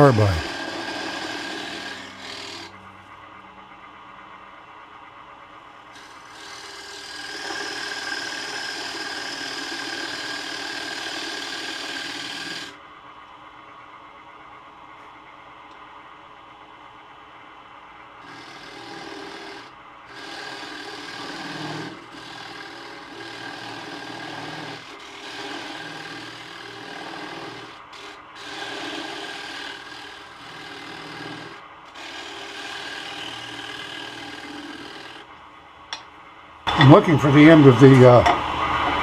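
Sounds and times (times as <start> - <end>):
lathe tool scraping wood: 0.0 - 2.8, 6.0 - 12.7, 18.2 - 35.3.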